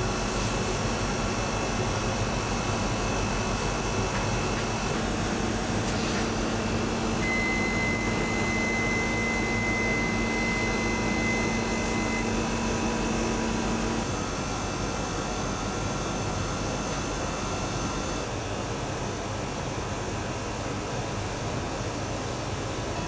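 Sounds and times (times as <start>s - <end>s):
ventilation fan hum: 0.0s - 23.0s
high steady tone: 7.2s - 14.1s.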